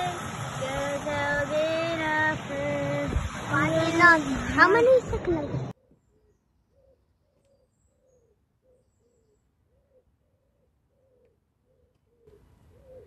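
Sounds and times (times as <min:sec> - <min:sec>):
outdoor background noise: 0:00.0 - 0:13.0
small birds chirping: 0:05.2 - 0:13.0
pigeon cooing: 0:07.6 - 0:13.0.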